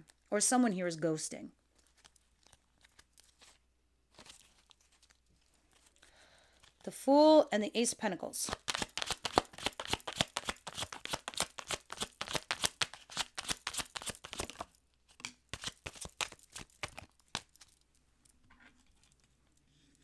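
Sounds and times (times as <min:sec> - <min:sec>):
cards being shuffled by hand: 0:01.8 - 0:06.0, 0:08.4 - 0:14.8, 0:15.5 - 0:17.8.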